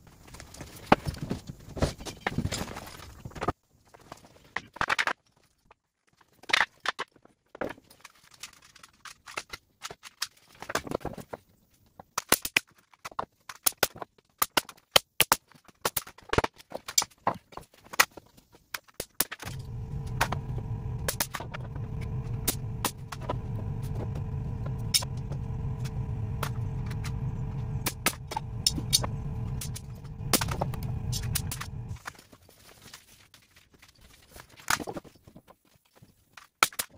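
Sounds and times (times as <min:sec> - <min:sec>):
air compressor running: 0:19.4 - 0:32.0.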